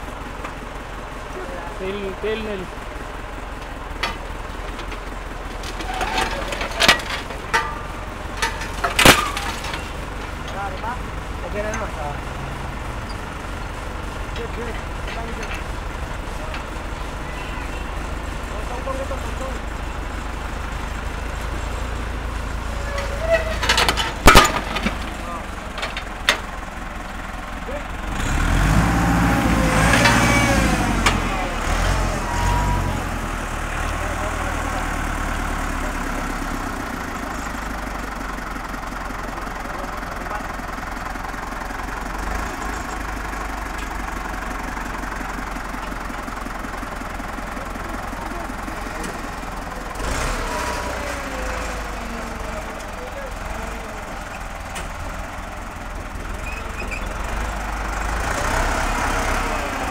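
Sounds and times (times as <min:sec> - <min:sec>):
tractor engine running: 0:00.0 - 0:59.9
metal hitch linkage clanking: 0:03.5 - 0:12.1, 0:22.6 - 0:27.1
metallic clank of hitch linkage: 0:22.8 - 0:25.1.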